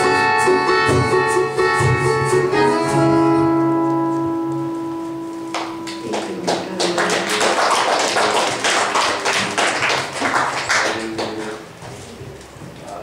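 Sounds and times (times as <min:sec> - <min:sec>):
held keyboard chord: 0:00.0 - 0:07.4
congregation applauding: 0:05.5 - 0:11.8.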